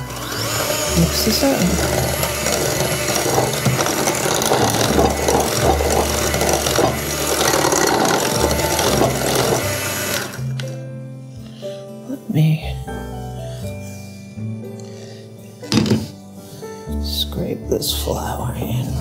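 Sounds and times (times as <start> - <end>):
beaters churning batter in glass bowl: 0.0 - 10.4
hand mixer running: 0.0 - 10.6.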